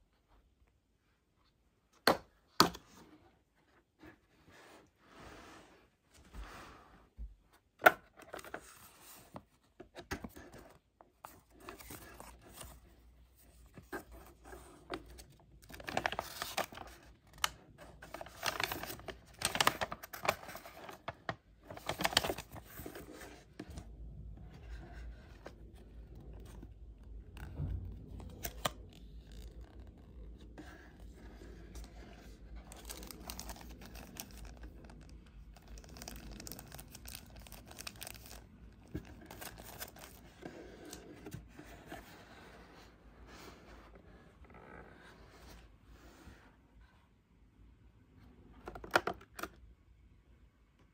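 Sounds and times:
paper rustling and crinkling: 0:08.2 - 0:23.9, 0:27.4 - 0:43.5.

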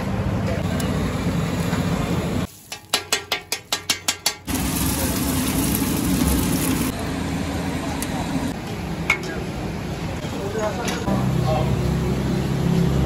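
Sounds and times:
eggs sizzling on griddle: 0:02.4 - 0:07.0.

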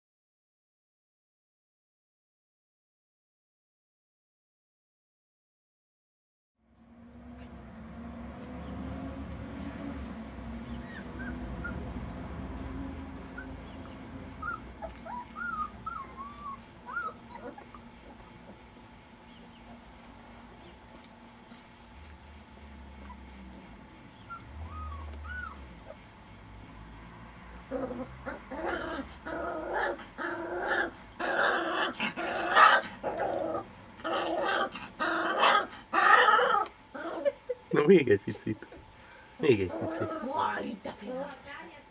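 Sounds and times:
low steady hum: 0:06.6 - 0:41.9
puppies growling and yelping: 0:09.2 - 0:37.7, 0:38.6 - 0:41.3
puppies whimpering: 0:10.6 - 0:12.2, 0:13.1 - 0:19.8, 0:23.0 - 0:26.0, 0:39.5 - 0:40.6.

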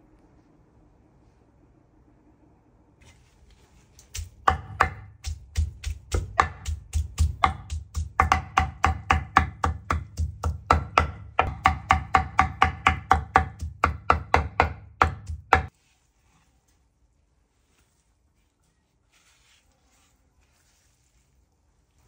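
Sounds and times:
knife chopping on cutting board: 0:04.1 - 0:15.7.

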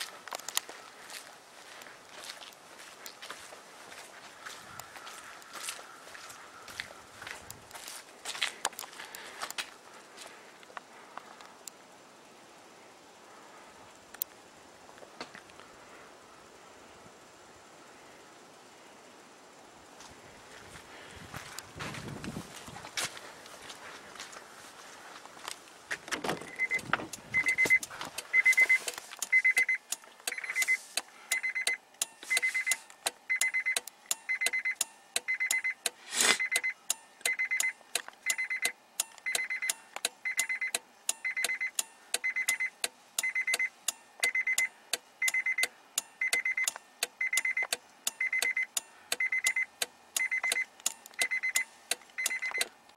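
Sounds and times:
short electronic beeps: 0:26.4 - 0:52.7.

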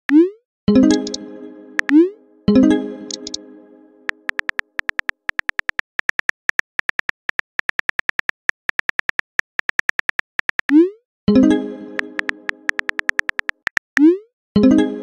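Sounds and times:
phone keyboard tap clicks: 0:04.1 - 0:10.7, 0:12.0 - 0:13.9.

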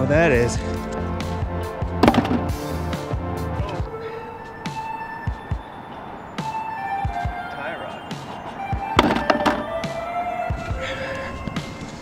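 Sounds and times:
held synth notes: 0:00.0 - 0:11.9.

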